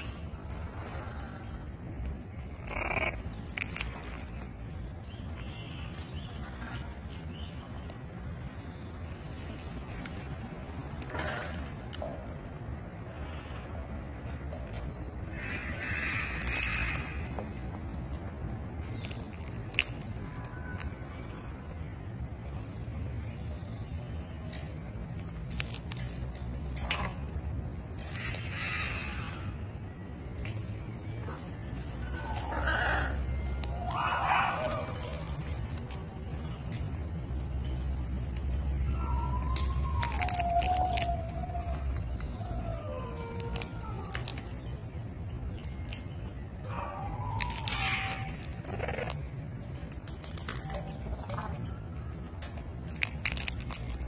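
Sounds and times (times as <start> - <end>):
peanut shell cracking: 2.6 - 4.4, 15.5 - 17.4, 18.8 - 21.0, 25.2 - 27.1, 39.4 - 41.7, 43.2 - 44.8, 47.2 - 49.2, 52.4 - 54.0
parrot nibbling: 40.0 - 41.1, 47.4 - 49.2.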